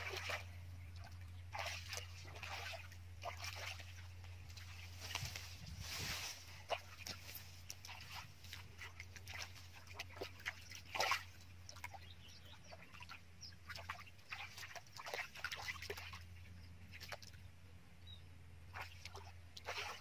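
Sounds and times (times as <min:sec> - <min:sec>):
hands splashing in muddy water: 0:00.0 - 0:12.0, 0:18.7 - 0:20.0
steady low hum: 0:00.0 - 0:20.0.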